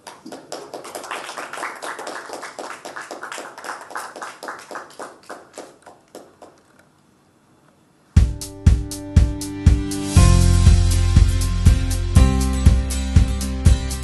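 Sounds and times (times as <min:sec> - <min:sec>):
audience clapping: 0:00.0 - 0:06.8.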